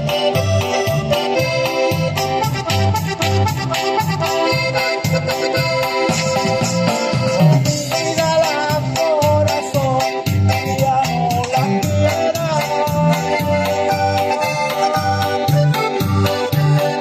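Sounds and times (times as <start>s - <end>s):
electronic organ chords: 0.0s - 17.0s
steady bass beat: 0.0s - 17.0s.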